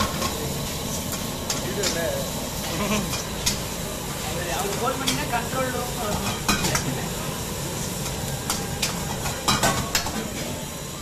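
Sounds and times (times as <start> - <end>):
food sizzling in a wok: 0.0 - 11.0.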